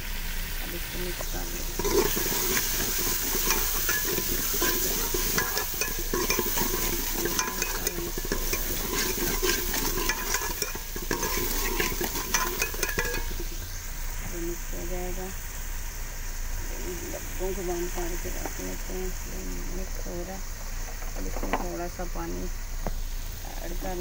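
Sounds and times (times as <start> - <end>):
frying sizzle: 0.0 - 24.0
spoon scraping metal pot: 1.6 - 13.5.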